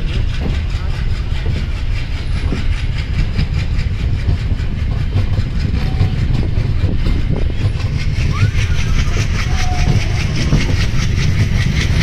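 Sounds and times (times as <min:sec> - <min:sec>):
train wheels rumbling on rails: 0:00.0 - 0:12.0.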